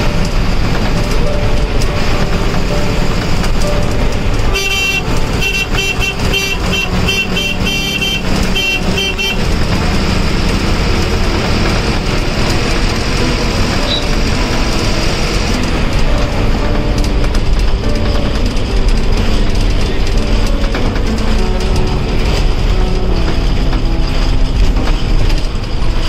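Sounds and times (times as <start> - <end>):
bus engine and road noise: 0.0 - 26.0
horn tooting: 3.6 - 17.2.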